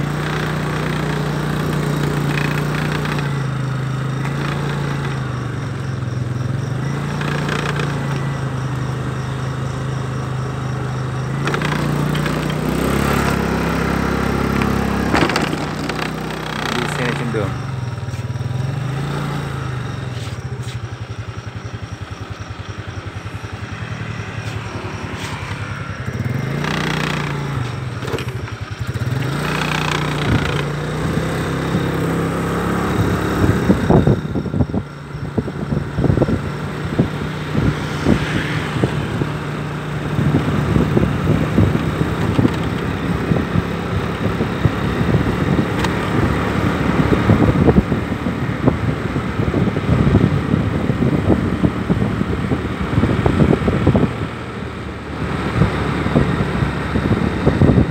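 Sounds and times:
motorbike engine running: 0:00.0 - 0:57.9
wind buffeting microphone: 0:30.1 - 0:57.9.

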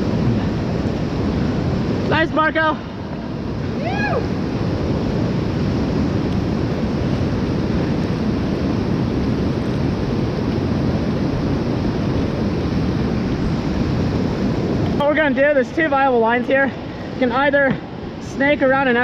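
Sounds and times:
whitewater rapids rushing: 0:00.0 - 0:19.0.

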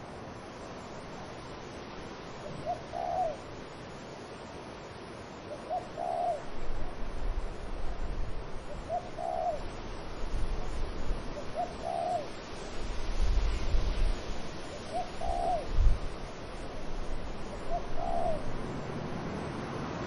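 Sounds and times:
wind: 0:00.0 - 0:20.0
dove cooing: 0:02.4 - 0:03.5, 0:05.5 - 0:06.5, 0:08.6 - 0:09.7, 0:11.3 - 0:12.4, 0:14.7 - 0:16.1, 0:17.4 - 0:18.7.

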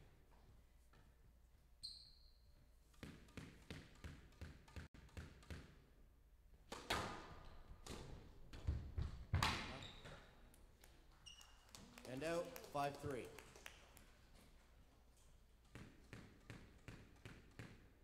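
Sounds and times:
shoe squeak: 0:01.8 - 0:02.6, 0:09.6 - 0:10.4, 0:11.1 - 0:11.8
squash ball knocks: 0:02.9 - 0:05.8, 0:06.7 - 0:09.8, 0:15.7 - 0:17.9.

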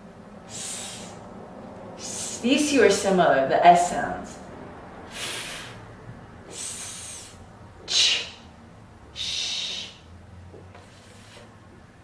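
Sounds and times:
woman hissing consonant sounds: 0:00.5 - 0:01.3, 0:02.0 - 0:02.5, 0:06.5 - 0:08.5, 0:09.2 - 0:10.1.

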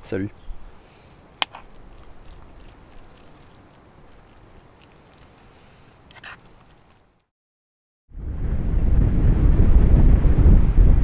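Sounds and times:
low steady hiss: 0:00.0 - 0:07.2.

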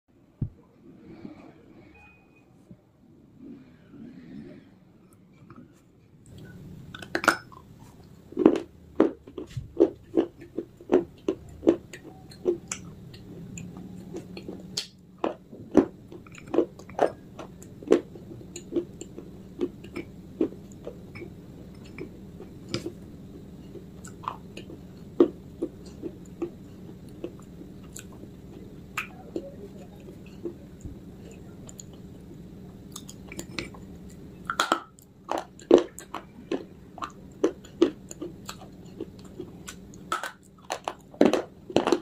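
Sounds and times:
person chewing crunchy clay: 0:05.5 - 0:42.0.

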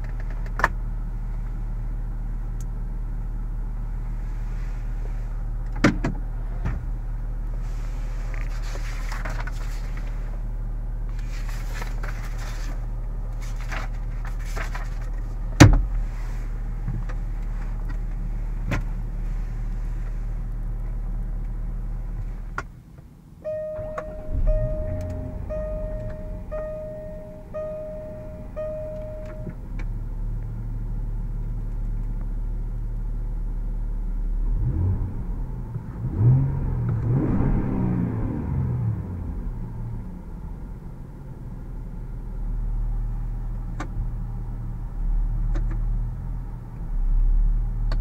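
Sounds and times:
car engine idling hum: 0:00.0 - 0:48.0
car warning chime: 0:23.4 - 0:29.6
clicks: 0:23.5 - 0:29.9.

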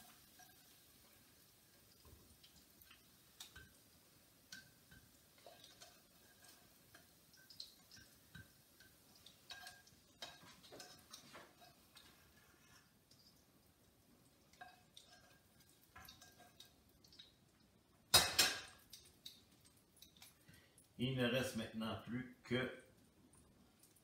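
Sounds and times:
metal utensil tapping frying pan: 0:00.0 - 0:13.5, 0:14.3 - 0:17.4, 0:18.1 - 0:20.3.

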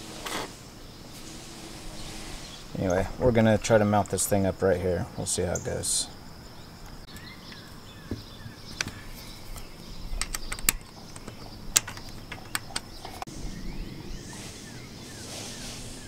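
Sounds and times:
birds chirping faintly: 0:00.0 - 0:16.0
sharp metal clicks and taps: 0:08.8 - 0:13.3.

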